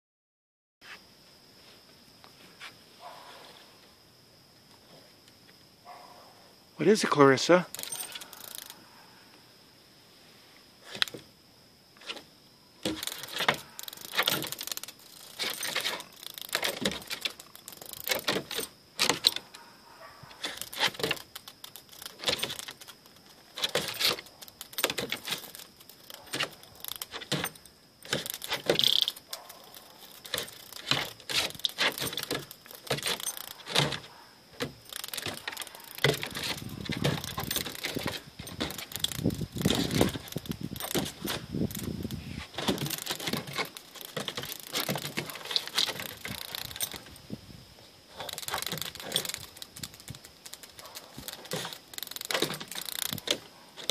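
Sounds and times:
dog collar tags jingling: 7.5 - 8.8, 12.8 - 47.3, 48.2 - 53.9
claws clicking on wooden deck: 7.7 - 8.8, 10.8 - 11.2, 12.0 - 47.3, 48.1 - 53.9.

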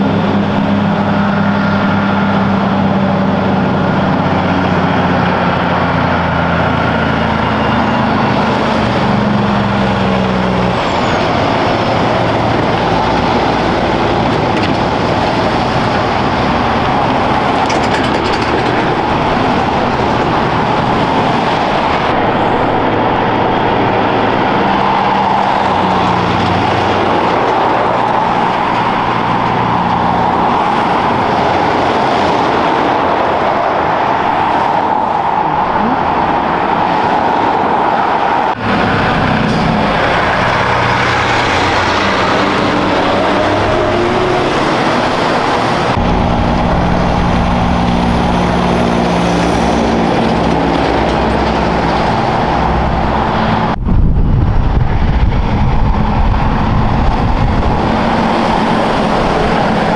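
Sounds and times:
heavy diesel trucks passing: 0.0 - 59.9
tyre and road noise: 0.0 - 59.9
low engine note: 38.5 - 59.9.

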